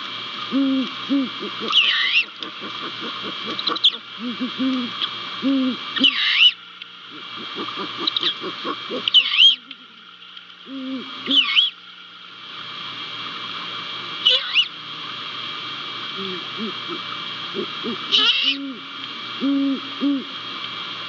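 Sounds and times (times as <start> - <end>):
steady hiss: 0.0 - 21.0
owls hooting: 0.5 - 9.8, 10.7 - 11.8, 14.2 - 14.7, 16.2 - 20.3
higher wavering owl call: 0.5 - 10.0, 10.7 - 11.8, 14.2 - 14.8, 16.1 - 20.4.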